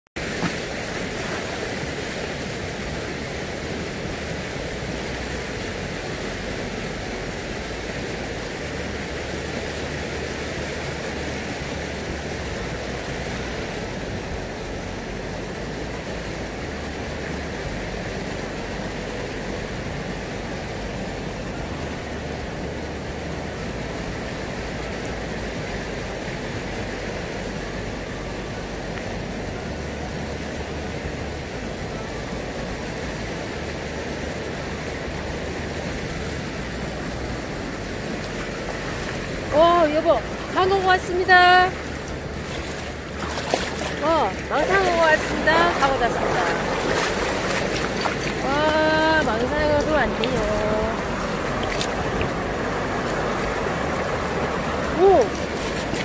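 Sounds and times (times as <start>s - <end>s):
sea surf: 0.2s - 56.0s.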